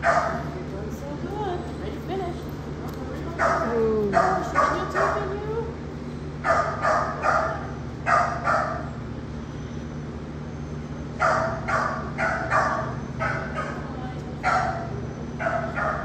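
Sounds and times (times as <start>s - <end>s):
dog barking: 0.0s - 0.5s, 3.4s - 5.4s, 6.4s - 8.9s, 11.2s - 16.0s
steady low hum: 0.0s - 16.0s.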